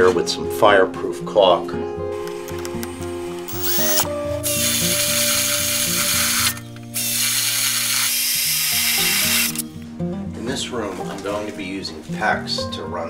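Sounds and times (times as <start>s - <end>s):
drill boring through wood: 3.5s - 9.6s.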